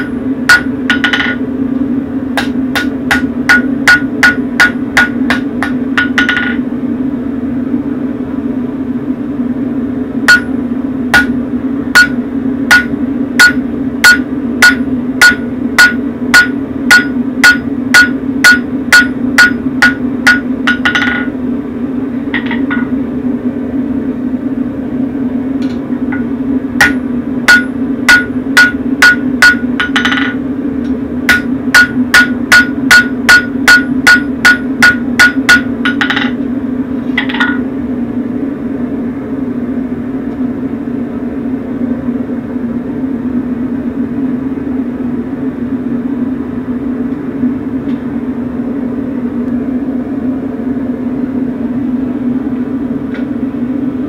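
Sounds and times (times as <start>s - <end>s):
hammer striking steel on anvil: 0.0s - 1.4s, 2.4s - 6.6s, 10.3s - 10.6s, 11.2s - 11.4s, 12.0s - 21.3s, 22.4s - 22.9s, 26.1s - 30.4s, 31.3s - 36.4s, 37.2s - 37.6s
steady low hum: 0.0s - 54.0s.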